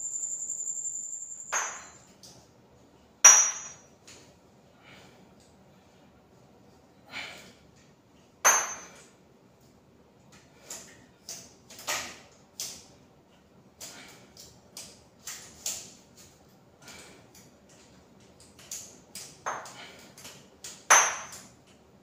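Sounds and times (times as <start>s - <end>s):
sharp ringing clink: 0.0s - 2.2s, 3.3s - 3.9s
dumbbells clinking and knocking: 1.2s - 2.1s, 3.3s - 3.9s, 8.5s - 9.0s, 20.8s - 21.5s.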